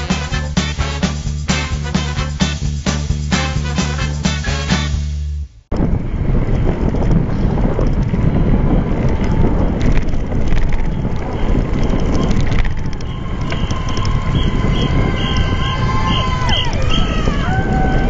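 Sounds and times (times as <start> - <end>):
road rumble: 0.0 - 18.0
wind buffeting microphone: 5.7 - 18.0.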